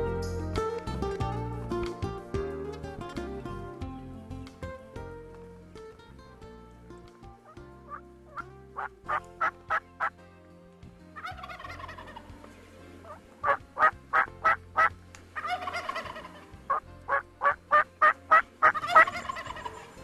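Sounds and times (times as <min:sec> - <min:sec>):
turkey gobbling: 0:07.9 - 0:10.1, 0:11.2 - 0:12.3, 0:13.0 - 0:20.0
turkey yelps: 0:07.9 - 0:10.1, 0:11.2 - 0:12.2, 0:13.0 - 0:20.0.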